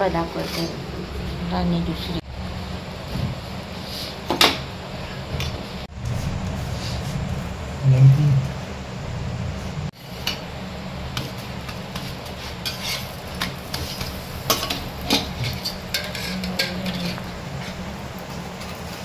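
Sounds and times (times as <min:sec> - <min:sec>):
steady low hum: 0:00.0 - 0:19.0
metal spoon scraping cookware: 0:12.6 - 0:17.8.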